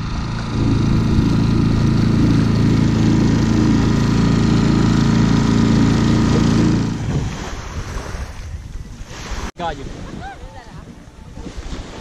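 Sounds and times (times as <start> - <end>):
outboard motor droning: 0.0 - 8.0.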